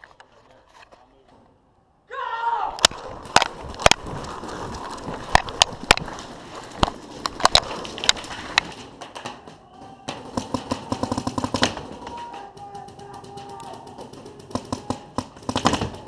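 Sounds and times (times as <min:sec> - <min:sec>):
player running and dropping: 0:02.8 - 0:10.2
paintball markers firing: 0:02.8 - 0:16.0.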